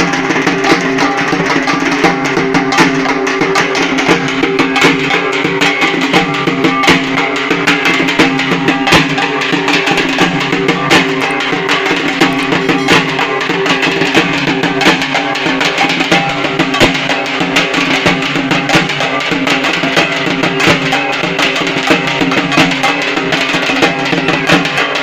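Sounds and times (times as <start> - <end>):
fast drumming: 0.0 - 25.0
sustained pitched instruments: 7.2 - 15.2.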